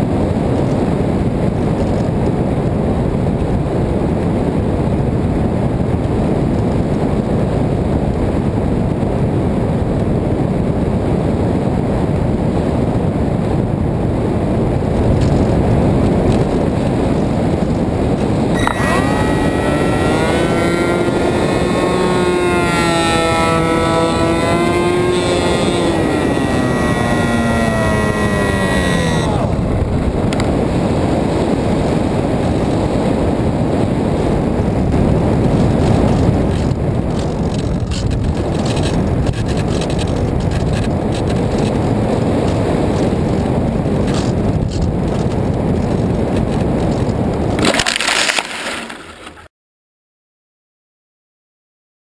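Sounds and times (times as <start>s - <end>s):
wind rushing on microphone: 0.0s - 48.0s
electric motor and propeller whine: 8.7s - 49.4s.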